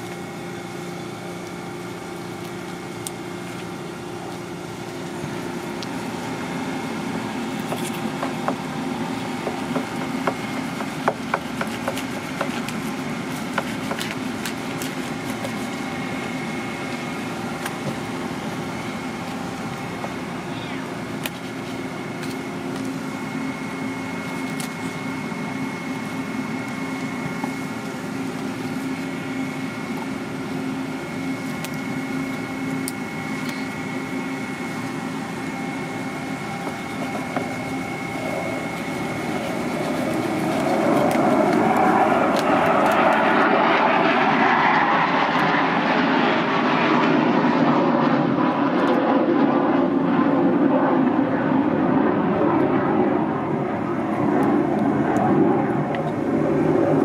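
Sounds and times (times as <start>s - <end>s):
loud engine noise: 0.0s - 57.0s
steady mechanical hum: 0.0s - 57.0s
thin high whine: 11.6s - 57.0s.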